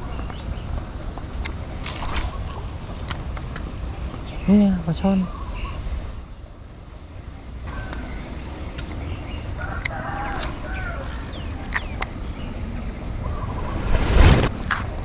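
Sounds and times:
chickens clucking: 9.6 - 12.1
low rumble: 10.5 - 15.0.

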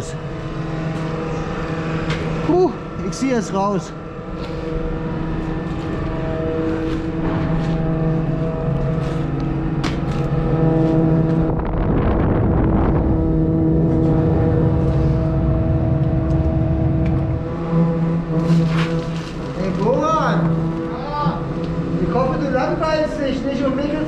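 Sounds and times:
rush of noise: 0.0 - 18.2
pump droning hum: 0.0 - 24.0.

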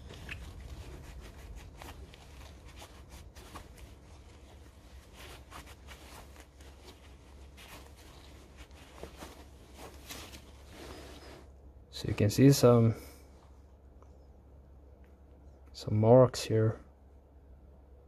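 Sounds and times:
cloth rustling and rubbing: 0.0 - 14.4.

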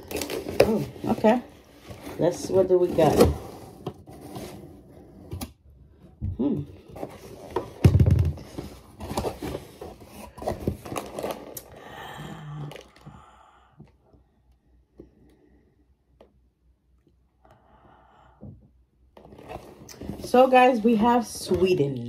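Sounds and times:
cardboard scraping and rustling: 0.0 - 5.5, 6.8 - 11.6.

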